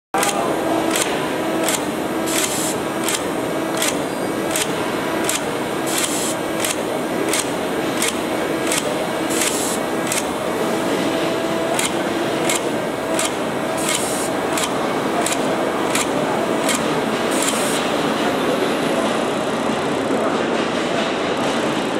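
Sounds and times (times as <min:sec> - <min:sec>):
sharp machine clicks: 0:00.2 - 0:18.3
short hissing bursts: 0:01.6 - 0:03.3, 0:05.2 - 0:07.4, 0:08.0 - 0:10.4, 0:11.8 - 0:16.0, 0:16.6 - 0:18.0.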